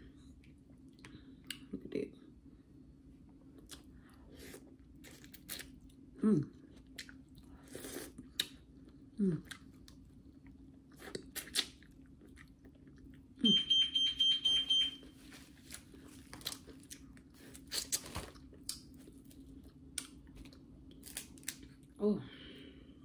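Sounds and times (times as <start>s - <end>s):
low steady hum: 0.0s - 23.0s
person chewing and lip smacking: 0.4s - 2.0s, 3.5s - 13.6s, 15.6s - 22.0s.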